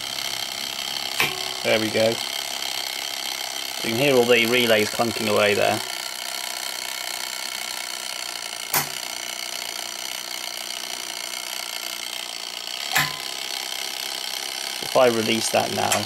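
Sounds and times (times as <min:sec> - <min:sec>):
mechanical whirr: 0:00.0 - 0:16.0
relay clunks: 0:12.9 - 0:13.3.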